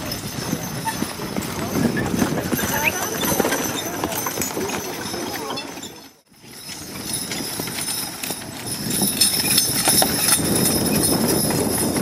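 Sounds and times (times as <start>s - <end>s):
horse hooves clip-clopping: 0.0s - 12.0s
metal harness jingling: 0.0s - 12.0s.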